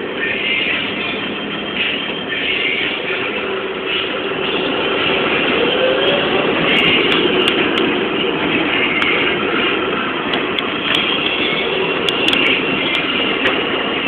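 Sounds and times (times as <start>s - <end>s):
bus engine and road noise: 0.0s - 14.0s
bus body rattling: 6.4s - 14.0s.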